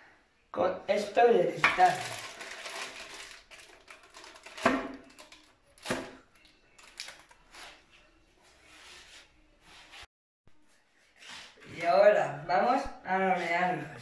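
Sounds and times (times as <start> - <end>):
parchment paper rustling: 1.6 - 5.9.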